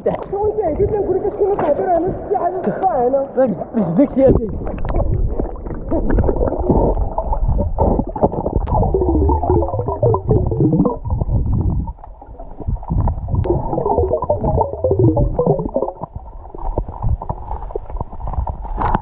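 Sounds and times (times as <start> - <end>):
water churning and bubbling: 3.6 - 19.0
warbling tones: 4.4 - 17.3.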